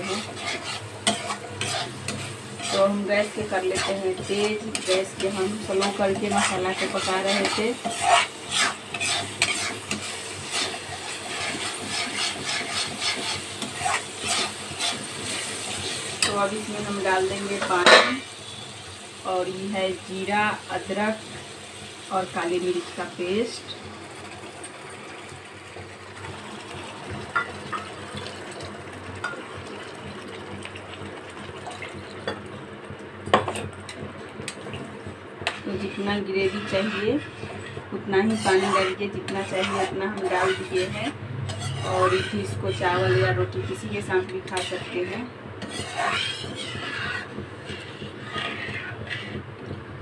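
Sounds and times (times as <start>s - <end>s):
spatula scraping a pan: 0.0s - 18.7s, 35.4s - 49.8s
faint sizzle: 0.0s - 50.0s.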